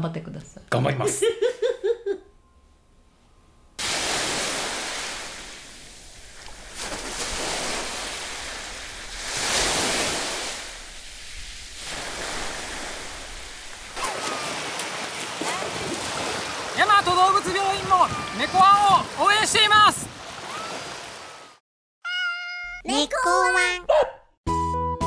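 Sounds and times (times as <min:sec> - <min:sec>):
splashing through shallow water: 0:03.8 - 0:21.5
surf washing onto beach: 0:03.8 - 0:21.6.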